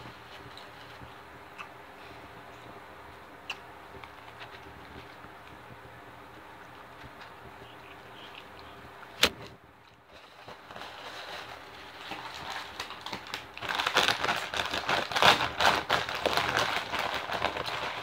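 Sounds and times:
foil chip bag crinkling: 9.9 - 18.0
soft rustling: 10.0 - 13.1.

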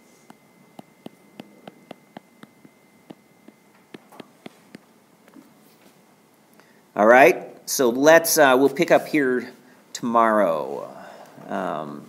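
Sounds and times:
faint high-pitched whine: 0.0 - 12.0
stylus tapping on tablet screen: 0.2 - 5.4.

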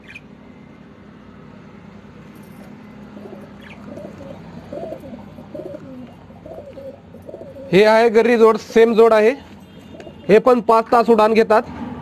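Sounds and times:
pigeons cooing: 2.5 - 7.9, 9.8 - 10.3.

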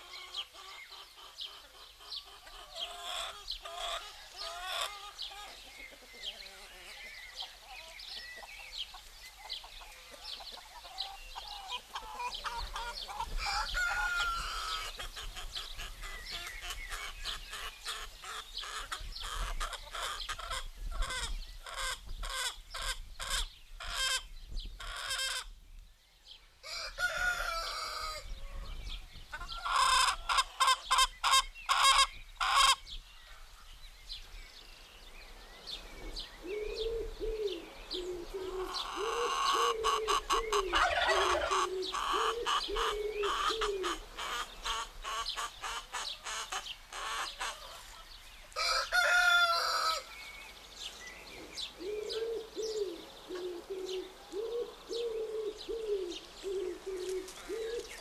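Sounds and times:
hens clucking: 0.0 - 25.5, 29.3 - 32.8, 37.9 - 50.0
small birds chirping: 0.0 - 26.6, 28.1 - 58.0
rooster crowing: 13.4 - 14.9, 26.6 - 28.3, 40.7 - 42.3, 48.6 - 50.1.

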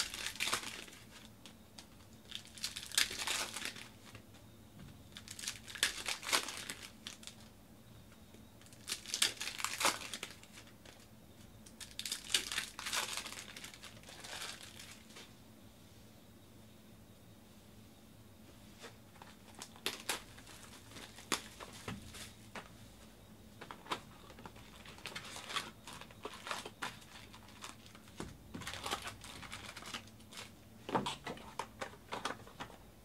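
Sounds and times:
foil wrappers crinkling and tearing: 0.0 - 4.2, 5.2 - 7.4, 8.6 - 11.1, 11.7 - 15.1, 19.2 - 21.9, 23.8 - 30.6.

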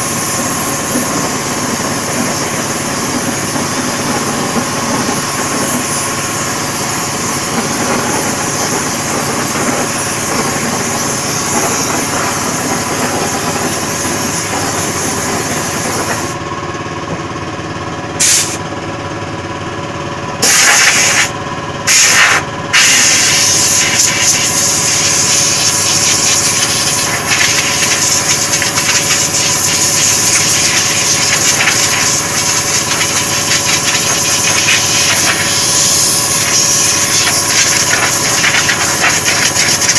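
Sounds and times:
air compressor running: 0.0 - 39.9
spray gun hissing: 18.2 - 18.6, 21.9 - 39.9.

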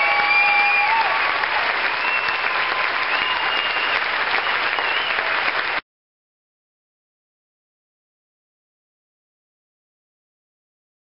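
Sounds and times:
crowd applauding: 0.0 - 5.8.

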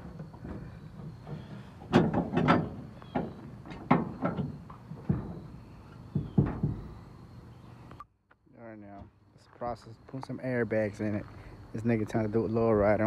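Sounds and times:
metal stands clunking: 0.0 - 7.0.

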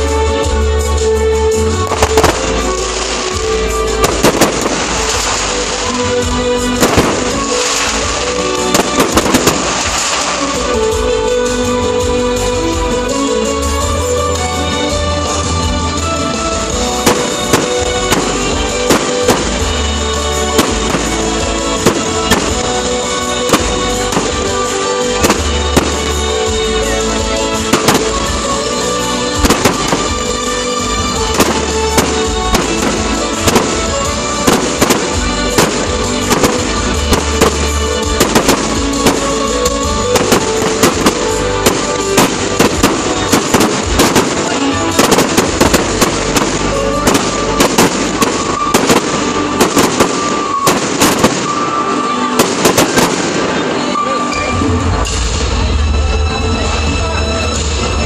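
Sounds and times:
fireworks bangs and crackles: 0.0 - 58.0
loud music playing: 0.0 - 58.0.

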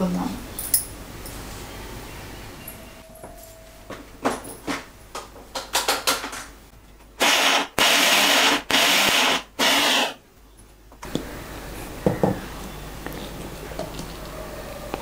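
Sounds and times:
mixer grinder running: 7.2 - 10.2.

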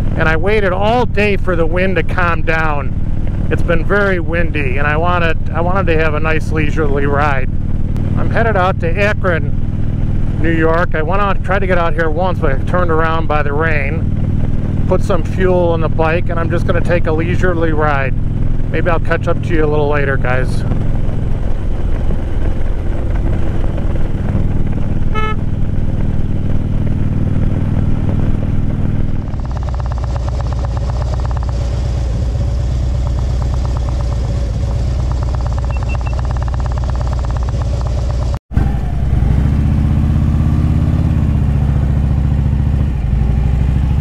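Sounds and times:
motorcycle engine idling: 0.0 - 44.0
motorcycle engine running: 0.0 - 44.0
wind noise: 20.2 - 37.8.

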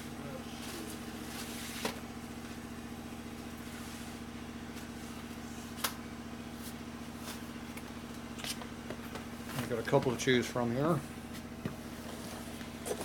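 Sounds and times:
low machine hum pulsing: 0.0 - 13.0.

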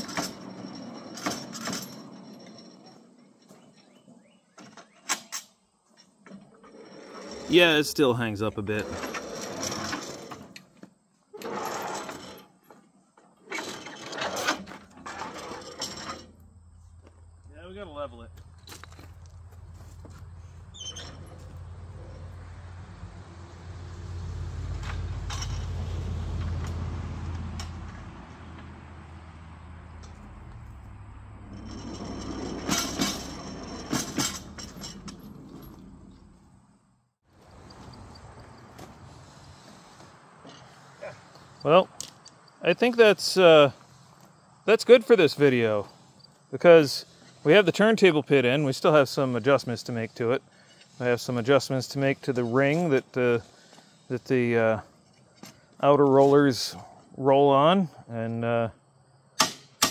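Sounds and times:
turntable rollers rumbling and rattling: 29.9 - 36.2
wheels clacking over rail gap: 29.9 - 36.4.

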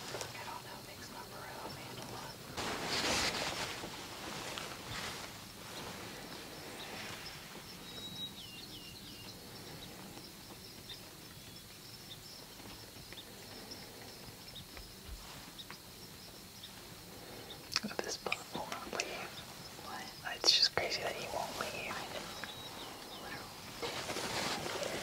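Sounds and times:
bird chirps: 21.2 - 23.9.

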